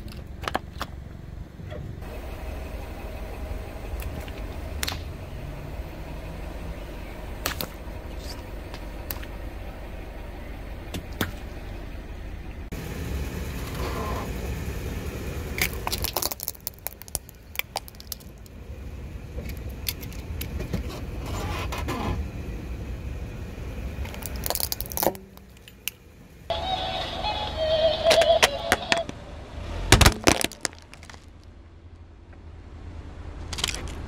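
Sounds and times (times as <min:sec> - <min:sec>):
car tyre rumble: 0:00.0 - 0:34.0
objects cracking and snapping: 0:15.6 - 0:18.6, 0:24.0 - 0:26.0, 0:29.9 - 0:31.4, 0:33.4 - 0:34.0.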